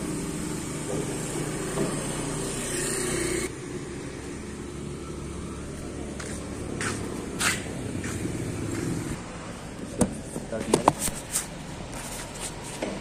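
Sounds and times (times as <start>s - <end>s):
truck engine idling: 3.4s - 13.0s.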